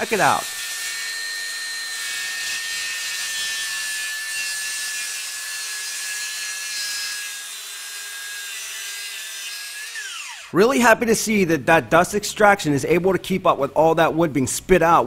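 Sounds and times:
circular saw cutting wood: 0.0s - 10.6s.

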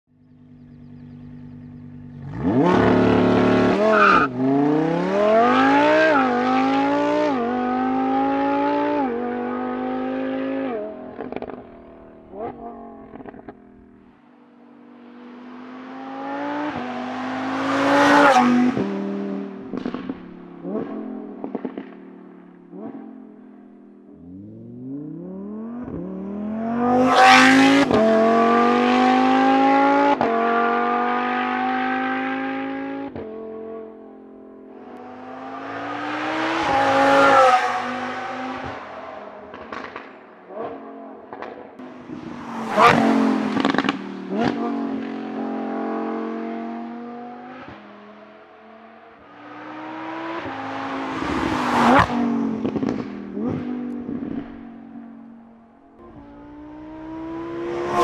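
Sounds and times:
sports car engine revving: 0.3s - 14.0s, 24.1s - 33.8s, 34.9s - 58.0s
exhaust crackles and pops: 39.5s - 40.2s, 52.6s - 54.5s.

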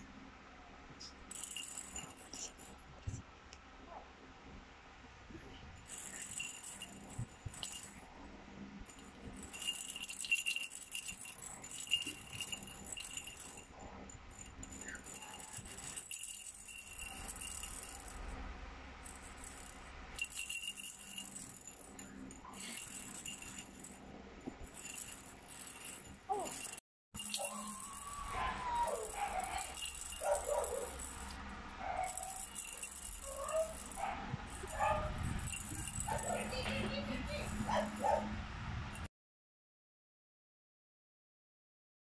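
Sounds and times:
plastic rattle toy shaking: 1.0s - 2.8s, 5.8s - 8.1s, 8.9s - 18.4s, 19.0s - 38.2s.

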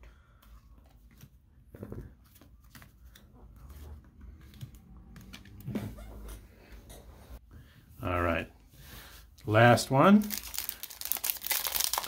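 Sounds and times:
cards flipping and rustling: 10.4s - 12.0s.

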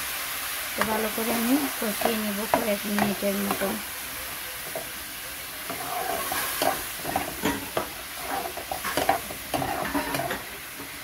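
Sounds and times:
spices sizzling: 0.0s - 11.0s
spatula scraping frying pan: 5.6s - 10.9s.

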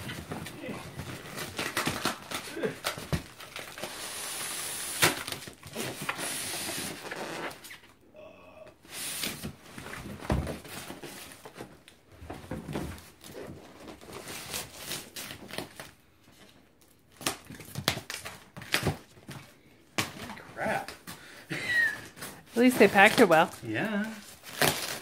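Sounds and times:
cardboard scraping and crinkling: 9.0s - 16.6s.

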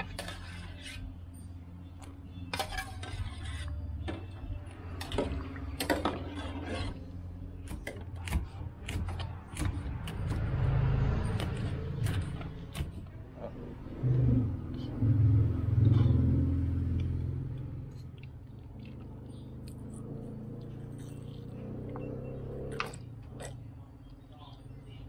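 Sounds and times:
metal ladle scraping saucepan: 0.0s - 1.4s, 2.4s - 7.2s.

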